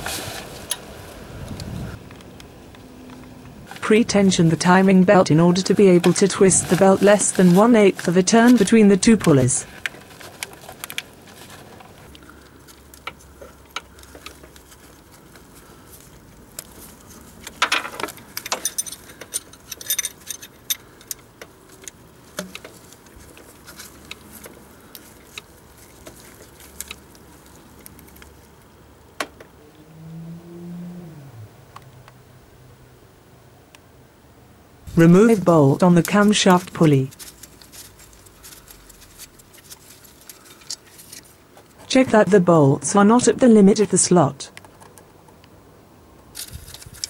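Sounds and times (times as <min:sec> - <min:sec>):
metal tools clinking: 0:17.6 - 0:21.2
low hum falling in pitch: 0:29.5 - 0:33.0.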